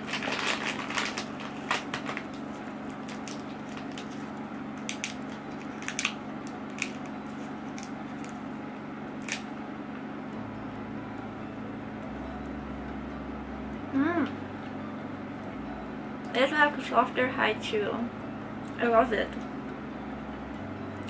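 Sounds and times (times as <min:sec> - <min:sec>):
plastic candy wrapper crinkling: 0:00.0 - 0:08.4.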